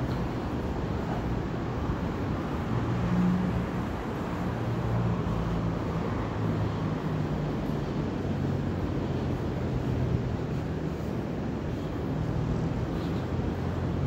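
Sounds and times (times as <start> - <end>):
passing cars: 0.0 - 14.0.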